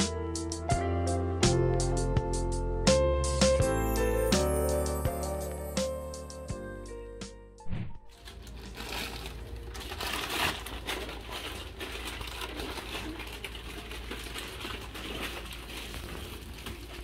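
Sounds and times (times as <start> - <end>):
plastic packets crinkling: 8.1 - 17.0.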